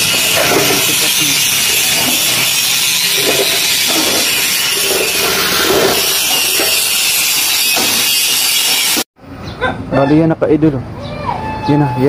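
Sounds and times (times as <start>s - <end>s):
power tool harsh hiss: 0.0s - 9.1s.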